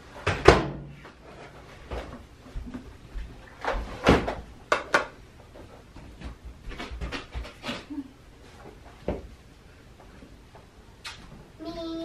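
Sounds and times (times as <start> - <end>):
household knocks and clunks: 3.6 - 5.2.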